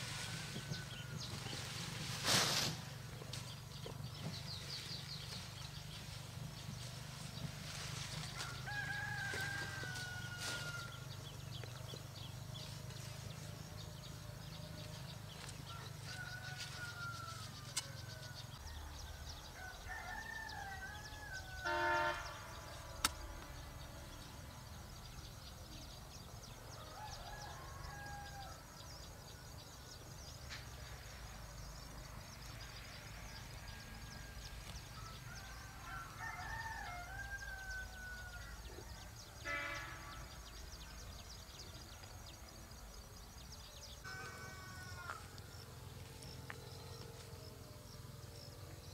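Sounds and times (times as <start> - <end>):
rooster crowing: 8.3 - 11.2, 15.4 - 22.2, 26.7 - 28.8, 33.6 - 39.0, 44.1 - 45.4.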